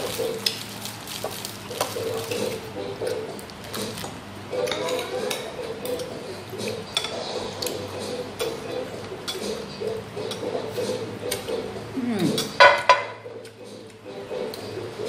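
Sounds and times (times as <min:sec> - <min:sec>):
chewing and mouth sounds: 0:04.9 - 0:12.6.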